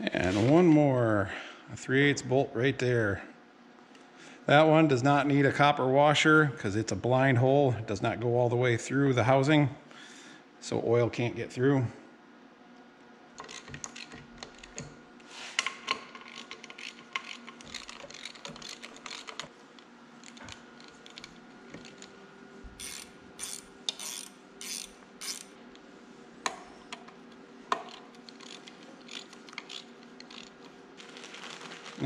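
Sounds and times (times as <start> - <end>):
tools and metal parts clinking: 15.7 - 19.5.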